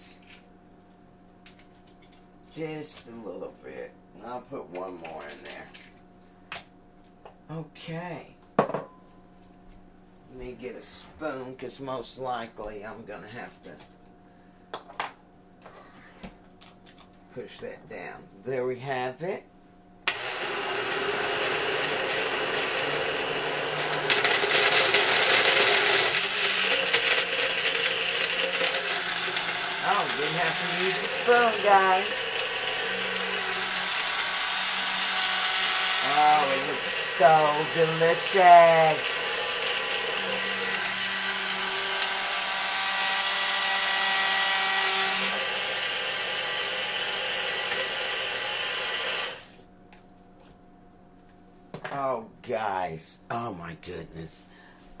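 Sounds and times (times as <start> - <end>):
blender motor running: 20.1 - 49.6.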